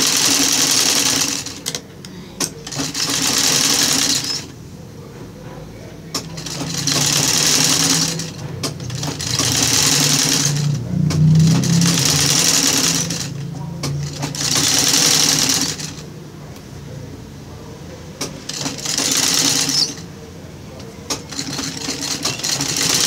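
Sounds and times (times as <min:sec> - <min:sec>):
sewing machine stitching: 0:00.0 - 0:04.6, 0:06.1 - 0:16.0, 0:18.2 - 0:20.1, 0:21.1 - 0:23.0.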